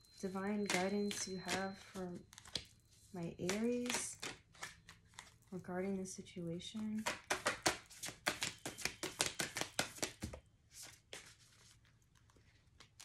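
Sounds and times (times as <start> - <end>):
cards shuffled by hand: 3.4 - 5.4, 7.0 - 13.0
card taps: 7.0 - 10.4.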